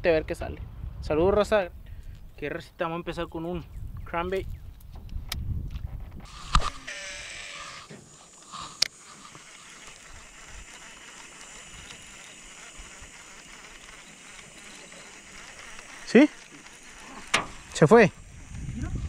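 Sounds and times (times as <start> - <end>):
fishing reel spool whirring: 6.2 - 19.0
fishing reel clicking: 6.3 - 19.0.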